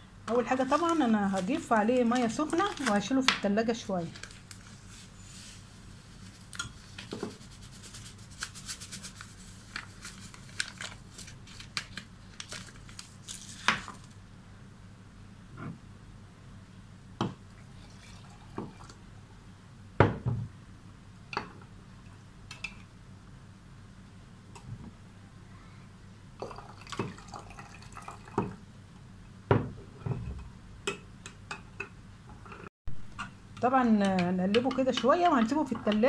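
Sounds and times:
hot water pouring into jar: 17.6s - 19.0s, 26.4s - 28.6s.

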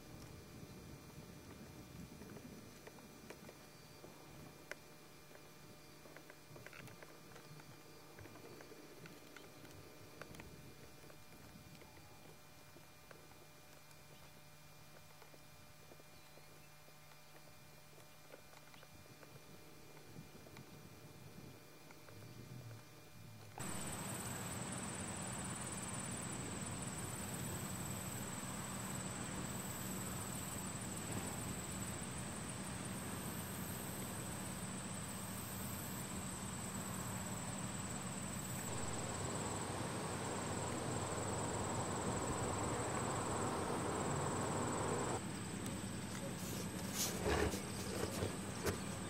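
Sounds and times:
faint low hum: 0.0s - 49.0s
mid-pitched noise: 23.1s - 47.0s
insects trilling: 23.6s - 49.0s.

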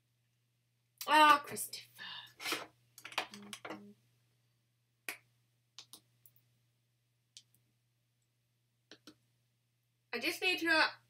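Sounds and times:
faint sharp clicks and taps: 5.1s - 6.4s, 8.9s - 9.2s.

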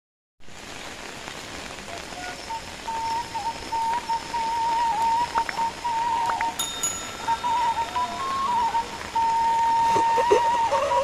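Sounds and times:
steady rain falling: 0.4s - 11.0s
thin wavering high tone: 2.9s - 11.0s.

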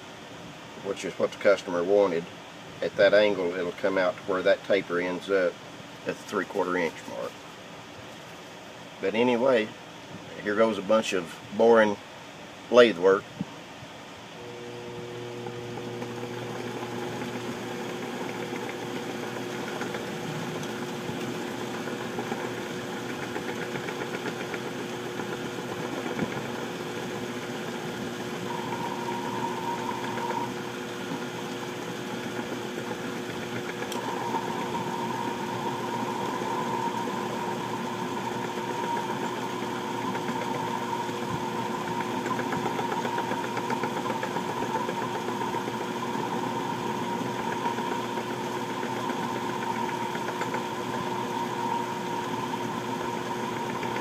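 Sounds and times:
metal lathe motor hum: 14.3s - 54.0s
high whine: 14.4s - 31.0s.

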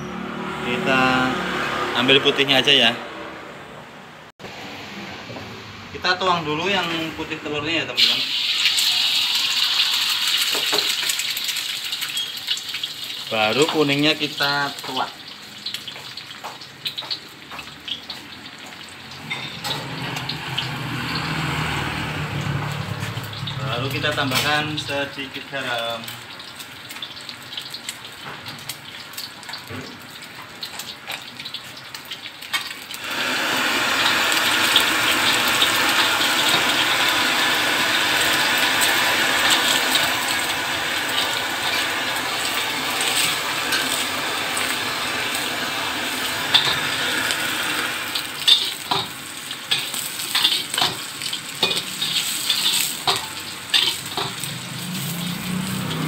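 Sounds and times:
egg sizzling in oil: 8.0s - 21.9s, 25.6s - 56.0s
metal spatula scraping wok: 49.7s - 55.9s.

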